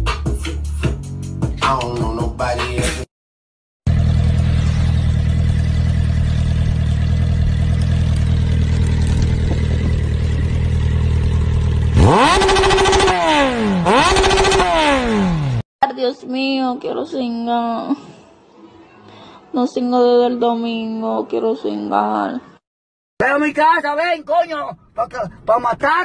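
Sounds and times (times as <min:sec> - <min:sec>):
motorcycle engine idling and revving: 0:03.9 - 0:15.7.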